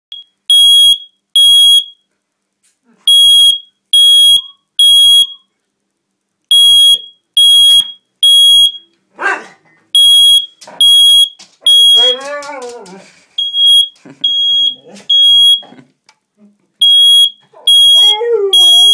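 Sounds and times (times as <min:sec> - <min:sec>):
smoke alarm beeping: 0:00.1 - 0:02.1, 0:03.1 - 0:05.5, 0:06.5 - 0:08.9, 0:10.0 - 0:12.3, 0:13.4 - 0:15.6, 0:16.8 - 0:18.9
dog barking: 0:09.2 - 0:09.6, 0:12.0 - 0:12.3.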